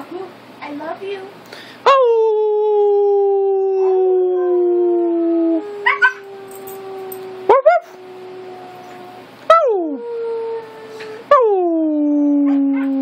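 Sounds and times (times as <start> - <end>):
dog howling: 2.3 - 13.0
dog yelping: 5.8 - 7.9.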